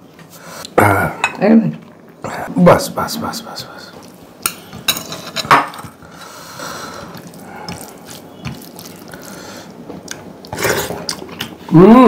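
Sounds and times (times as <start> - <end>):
fingers squishing rice and gravy: 6.8 - 11.7.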